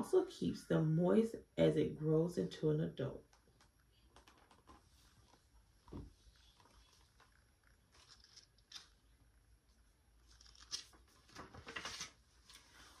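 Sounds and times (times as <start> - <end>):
book pages rustling and turning: 3.4 - 9.2, 10.2 - 13.0.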